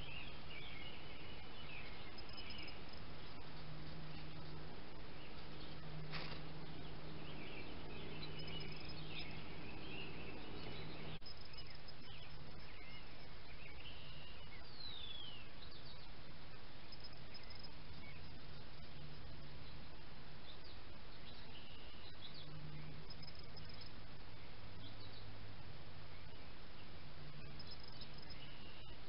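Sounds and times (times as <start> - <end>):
birds chirping: 0.0 - 29.0
low steady hum: 0.0 - 29.0.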